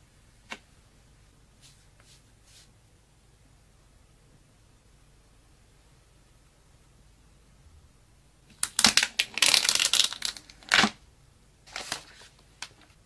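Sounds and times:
box packaging crinkling and tearing: 0:08.6 - 0:11.0, 0:11.7 - 0:12.2.

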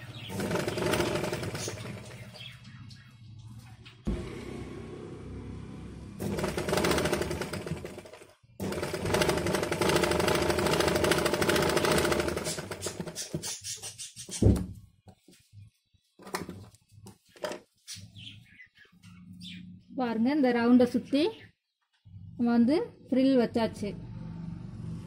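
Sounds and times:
sewing machine stitching: 0:00.0 - 0:02.3, 0:06.2 - 0:13.6.

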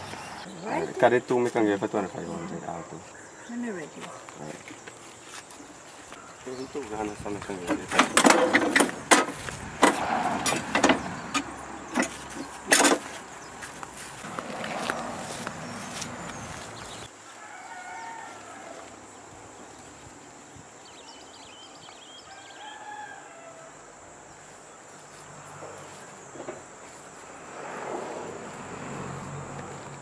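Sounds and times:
rooster crowing: 0:17.3 - 0:19.2, 0:22.2 - 0:24.0.

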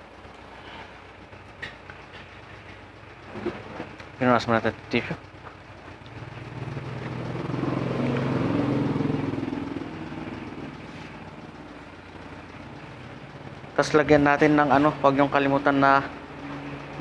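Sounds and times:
vehicle engine passing by: 0:06.0 - 0:17.0.

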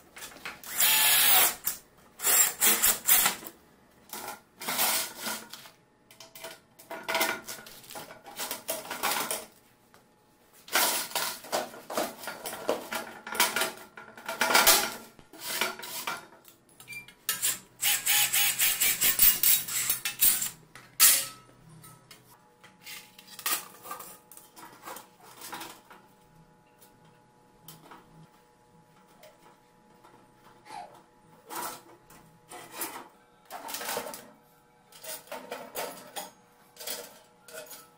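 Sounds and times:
cordless drill boring metal: 0:00.6 - 0:03.4, 0:17.4 - 0:20.6.

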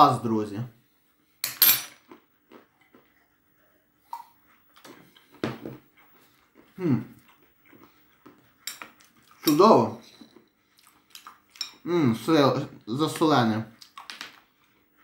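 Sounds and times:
soft chewing and mouth clicks: 0:02.0 - 0:11.9, 0:13.7 - 0:15.0.

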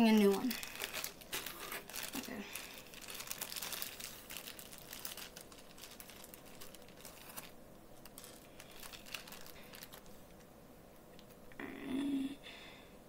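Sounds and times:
small bead crackles: 0:00.0 - 0:10.1
plastic bag crinkling: 0:00.0 - 0:10.4.

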